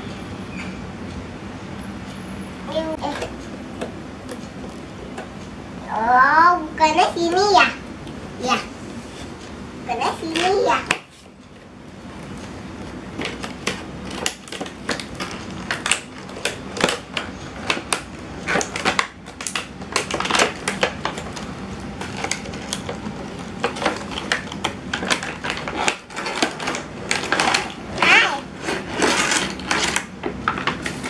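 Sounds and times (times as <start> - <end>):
cardboard scraping and crinkling: 20.0 - 31.0.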